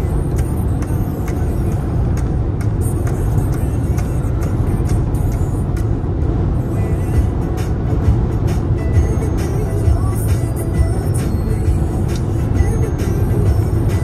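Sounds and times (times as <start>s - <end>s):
car cabin road rumble: 0.0s - 14.0s.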